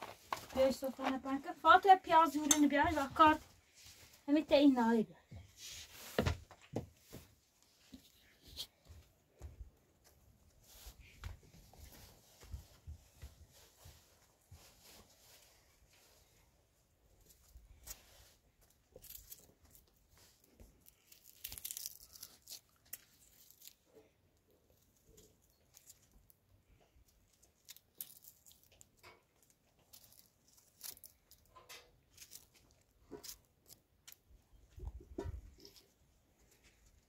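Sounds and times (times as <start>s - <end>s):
onion skin crackling and tearing: 18.6s - 26.4s, 27.1s - 34.4s.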